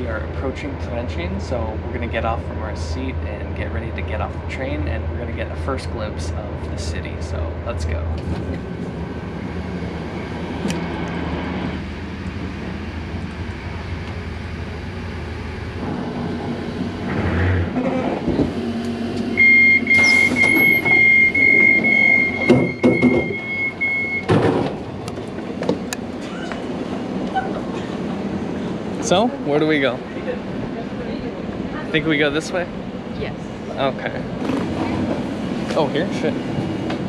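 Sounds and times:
train rumbling to a stop: 0.0s - 37.0s
high electronic tone: 19.4s - 24.3s
sliding door clunks: 22.4s - 25.8s.

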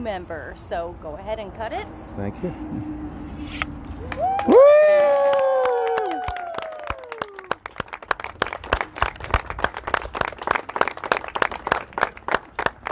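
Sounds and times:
crowd cheering: 4.0s - 7.8s
crowd applauding: 4.0s - 12.9s.

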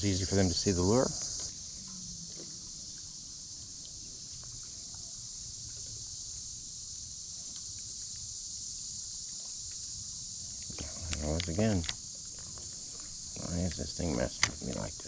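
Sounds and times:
crickets trilling: 0.0s - 15.0s
faint ticks: 7.3s - 8.4s, 9.1s - 15.0s.

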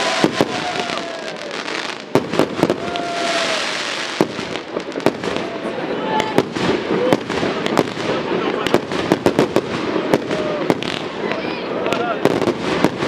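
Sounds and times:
crackling of fireworks stars: 0.0s - 13.0s.

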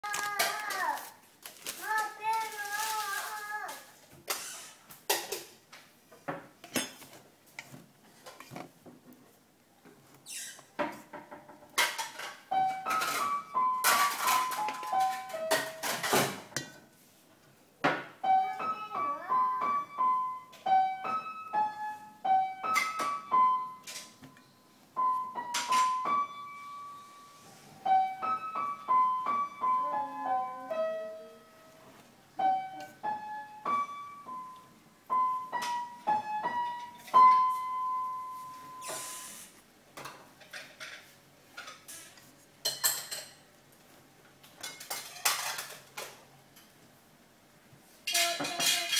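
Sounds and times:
piano melody: 12.5s - 15.9s, 18.2s - 38.8s.

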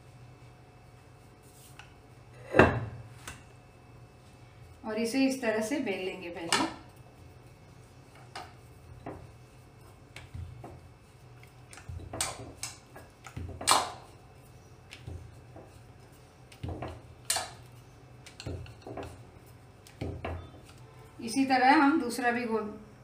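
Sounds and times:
rolling pin rolling dough: 5.0s - 20.9s
rolling pin knocking on stone: 8.4s - 9.3s, 11.7s - 14.1s, 16.5s - 17.6s, 19.9s - 20.6s.

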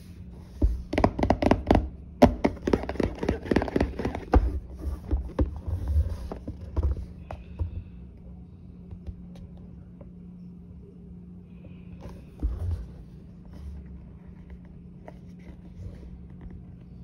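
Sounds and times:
fingers tapping cardboard box: 0.6s - 5.6s.

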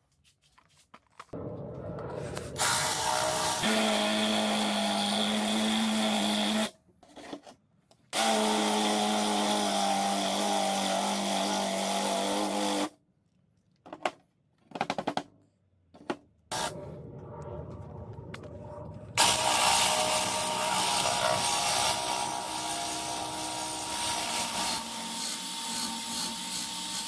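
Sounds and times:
electric drill boring through steel: 2.6s - 6.7s, 19.2s - 27.0s.

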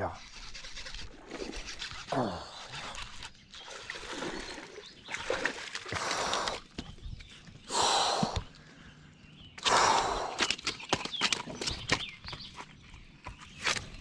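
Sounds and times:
person breathing hard: 7.7s - 10.5s.

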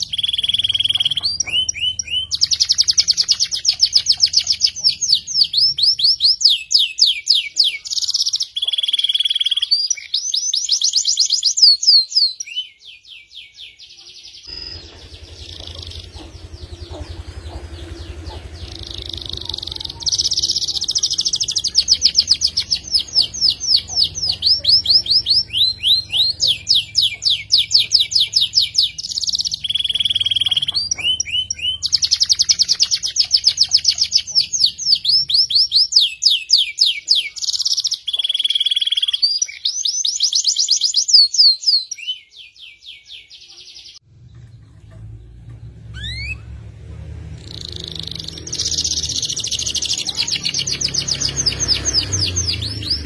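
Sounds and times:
canary singing trills: 0.0s - 53.0s
low hum: 14.5s - 21.6s.

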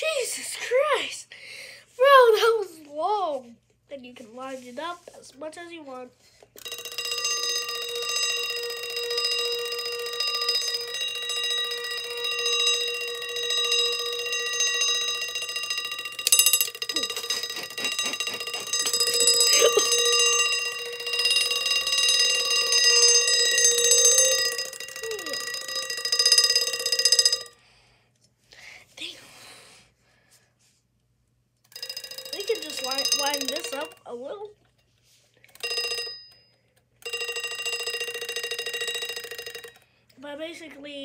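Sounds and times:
alarm clock bell ringing: 6.6s - 27.6s, 31.7s - 34.3s, 35.5s - 40.0s.

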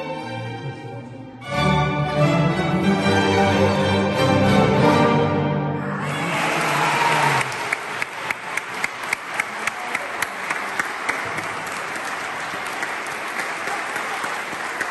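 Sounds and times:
audience applauding: 6.0s - 14.9s
nearby person clapping loudly: 6.5s - 14.9s.

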